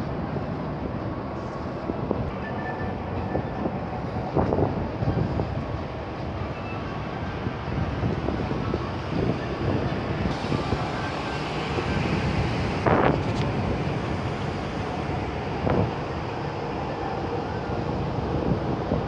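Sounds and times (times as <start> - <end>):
wind buffeting microphone: 3.2 - 16.6.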